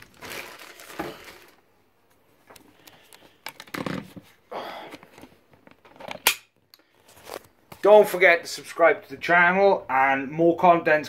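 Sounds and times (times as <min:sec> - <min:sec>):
plastic bag crinkling: 0:00.0 - 0:01.7.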